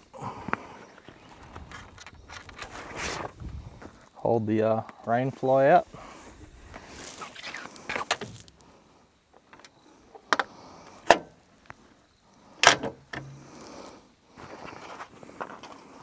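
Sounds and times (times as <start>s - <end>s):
tent poles clicking and knocking: 1.4s - 3.3s, 7.1s - 8.6s.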